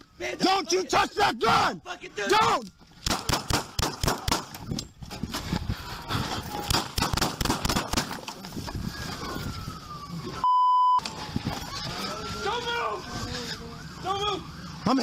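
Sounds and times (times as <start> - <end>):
faint siren wailing: 8.5 - 15.0
censor bleep: 10.4 - 11.0.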